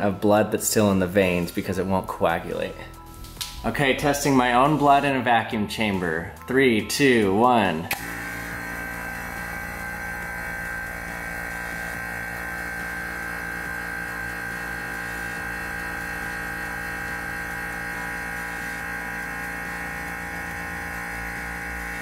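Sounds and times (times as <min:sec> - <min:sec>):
vacuum pump humming: 0:07.8 - 0:22.0.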